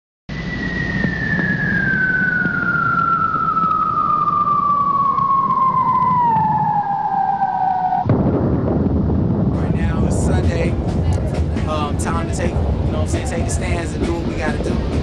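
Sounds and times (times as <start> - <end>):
whistle tone gliding down: 0.3 - 8.1
low rumble: 0.3 - 15.0.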